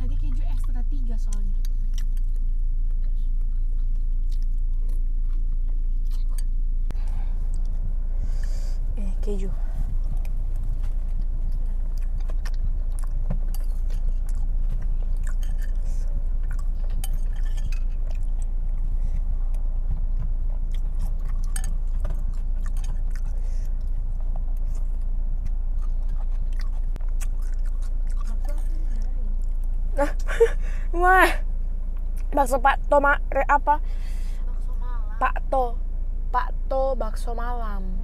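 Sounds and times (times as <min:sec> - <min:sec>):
steady low hum: 0:00.0 - 0:38.0
close chewing: 0:00.2 - 0:08.5, 0:09.7 - 0:30.0.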